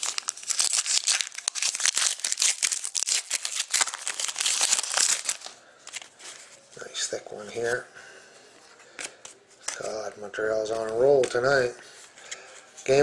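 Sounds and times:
plastic wrapping crinkling and tearing: 0:00.0 - 0:06.6.

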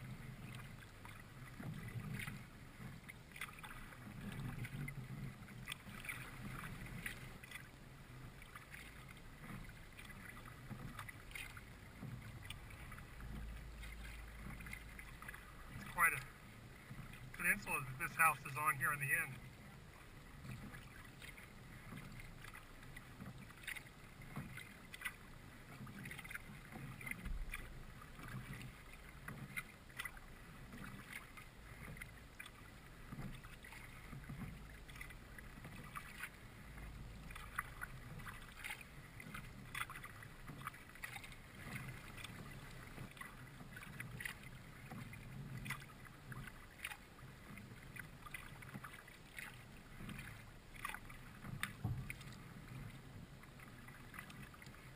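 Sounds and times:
paddle splashing water: 0:00.0 - 0:54.9.

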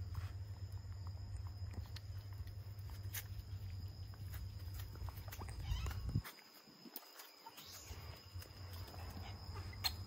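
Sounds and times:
steady low rumble: 0:00.0 - 0:06.2.

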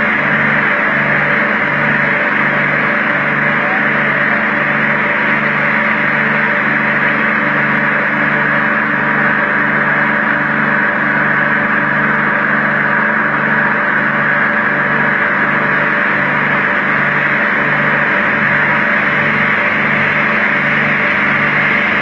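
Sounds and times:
low pulsing machine hum: 0:00.0 - 0:22.0.

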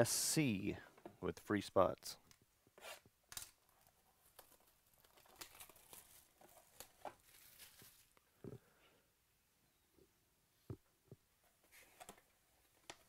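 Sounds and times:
card box crinkling and clicking: 0:03.3 - 0:08.2.

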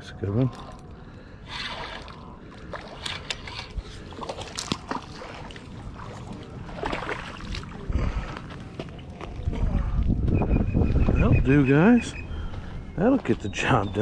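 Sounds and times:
water splashing: 0:00.5 - 0:08.2
fishing reel clicks and rattles: 0:02.9 - 0:03.8.

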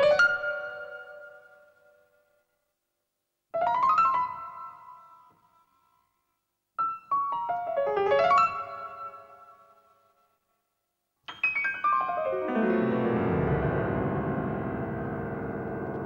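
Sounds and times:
solo piano music: 0:11.3 - 0:16.0.

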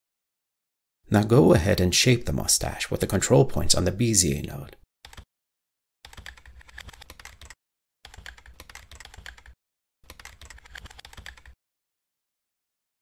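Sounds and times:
keyboard typing: 0:05.0 - 0:05.3, 0:06.0 - 0:11.6.

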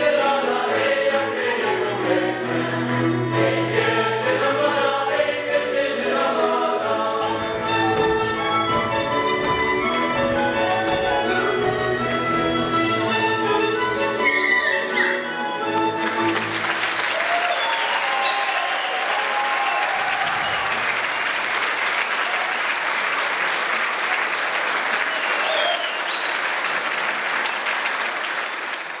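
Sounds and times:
folk music: 0:00.0 - 0:16.9
audience applauding: 0:15.7 - 0:29.0.

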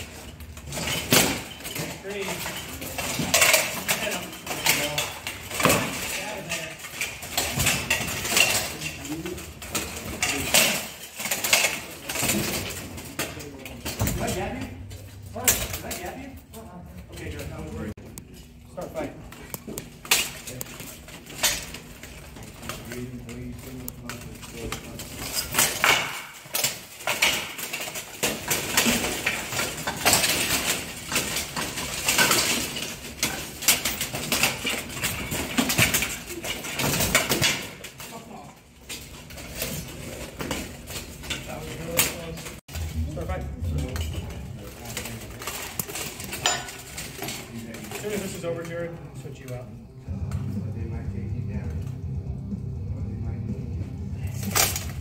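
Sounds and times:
plate armour clanking and scraping: 0:00.0 - 0:18.0, 0:18.7 - 0:49.6, 0:54.2 - 0:55.0
plate armour clanking: 0:24.1 - 0:38.4.

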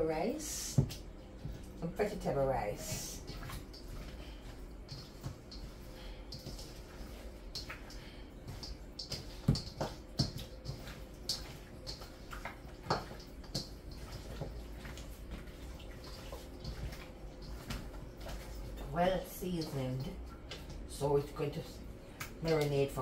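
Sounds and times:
hands squishing raw chicken: 0:03.2 - 0:19.0.

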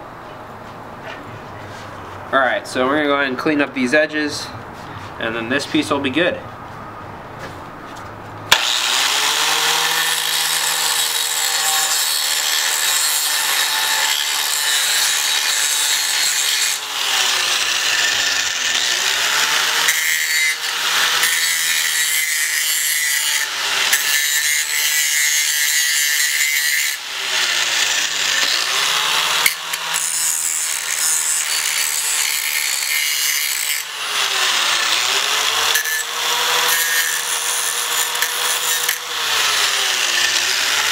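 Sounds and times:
angle grinder grinding metal: 0:08.5 - 0:40.9.

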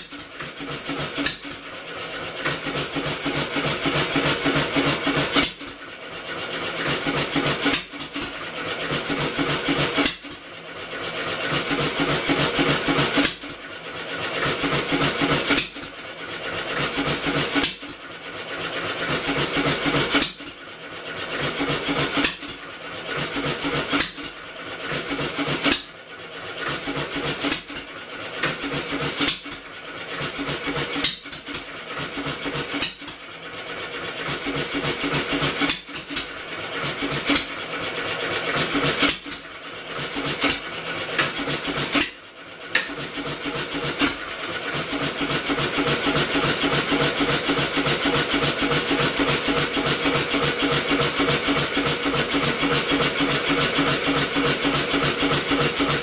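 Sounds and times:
engine clattering strokes: 0:00.0 - 0:56.0.

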